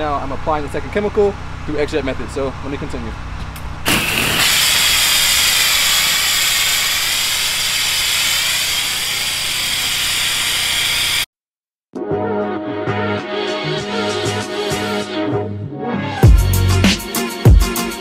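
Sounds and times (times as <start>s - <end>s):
pressure washer spraying: 3.9s - 11.3s
background music: 12.0s - 18.0s.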